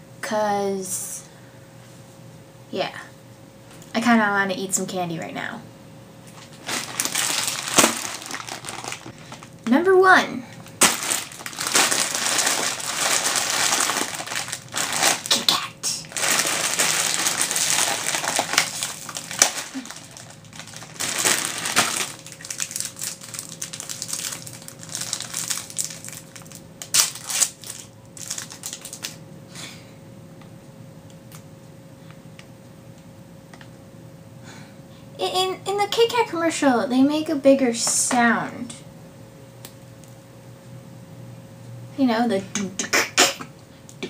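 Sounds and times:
wrapper crinkling and clicks: 0:06.3 - 0:09.7, 0:10.6 - 0:29.2
plastic bag crinkling: 0:06.4 - 0:09.8, 0:10.6 - 0:29.2.

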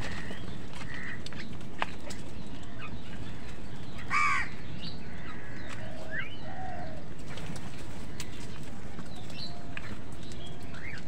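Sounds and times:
crows cawing: 0:00.0 - 0:01.5, 0:02.7 - 0:07.1
low background noise: 0:00.0 - 0:11.0.

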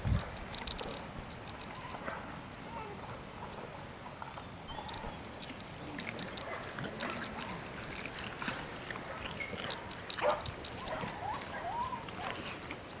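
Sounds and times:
small crunching clicks: 0:00.2 - 0:01.7, 0:04.2 - 0:11.2
dogs chewing bones: 0:04.8 - 0:11.5.

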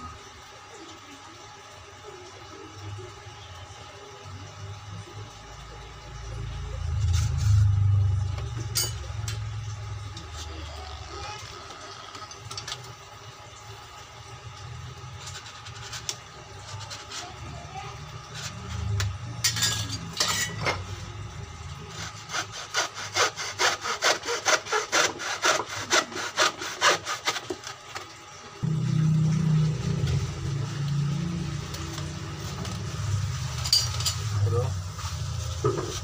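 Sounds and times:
hacksaw cutting through wood: 0:21.9 - 0:27.7.

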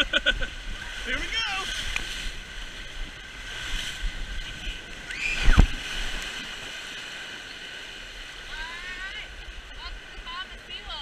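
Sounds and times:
water rushing down a slide: 0:00.0 - 0:07.5
water sloshing: 0:00.4 - 0:11.0
thump and splash: 0:05.3 - 0:06.7.

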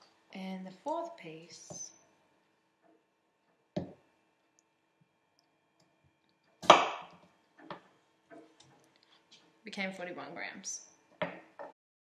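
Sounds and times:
knife chopping on wooden board: 0:06.6 - 0:07.2.

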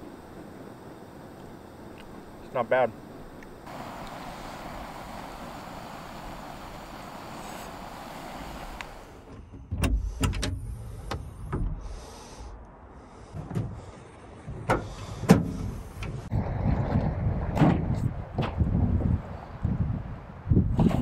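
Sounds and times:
gas flames hissing: 0:00.0 - 0:09.3.

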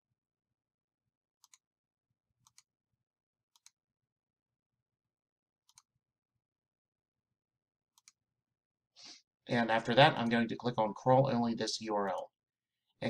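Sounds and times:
faint mouse clicks: 0:08.0 - 0:08.2.

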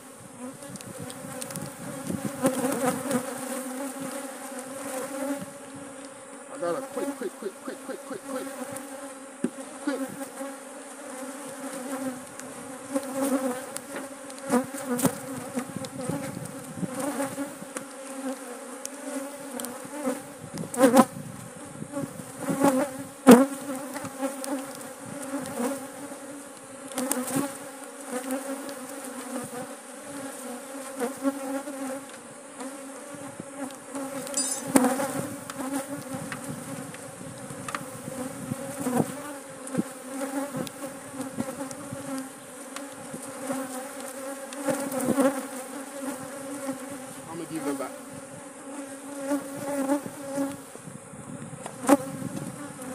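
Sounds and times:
bees buzzing: 0:00.0 - 0:52.9
hive tool knocking and scraping: 0:08.2 - 0:10.2, 0:34.0 - 0:37.0.

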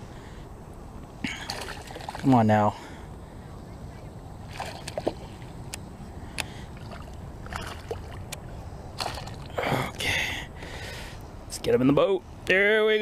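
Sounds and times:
low rumble of water and wind: 0:00.0 - 0:13.0.

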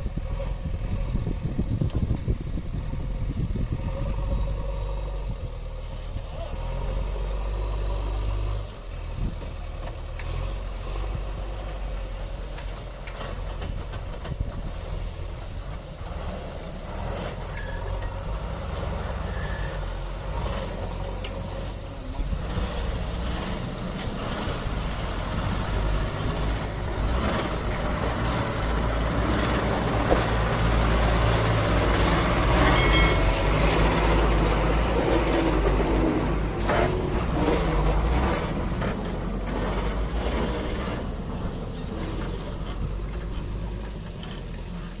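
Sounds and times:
diesel truck engine under load: 0:00.0 - 0:45.0
short high-pitched squeal: 0:19.3 - 0:19.9.

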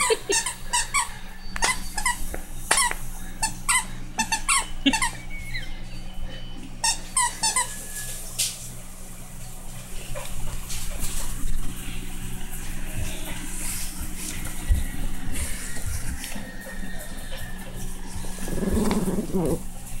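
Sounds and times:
dog toy squeaking: 0:00.0 - 0:06.1, 0:06.8 - 0:08.0
dog chewing on toy: 0:12.8 - 0:19.7.

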